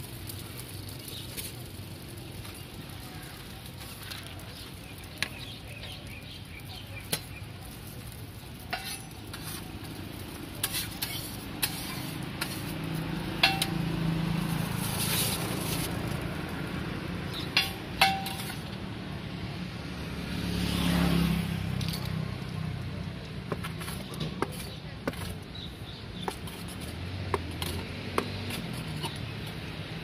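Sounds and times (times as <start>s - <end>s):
bread sizzling on a griddle: 0.0s - 30.0s
metal spatula clinking on pan: 8.7s - 9.3s, 13.4s - 13.9s, 17.5s - 18.7s.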